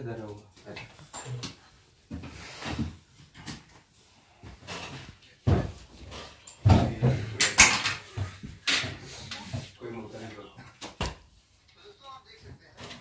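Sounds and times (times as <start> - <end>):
objects knocked and set down: 4.5 - 9.5.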